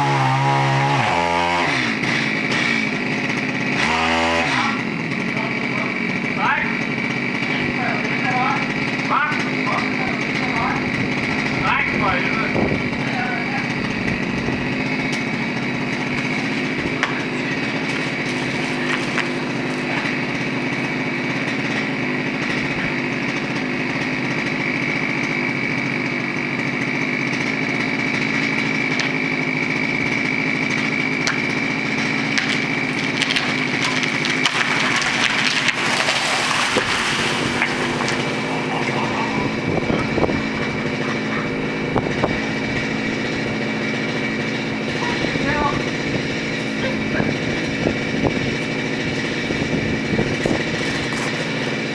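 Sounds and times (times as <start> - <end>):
chainsaw running: 0.0 - 51.9
tree top crashing through branches: 32.3 - 39.8.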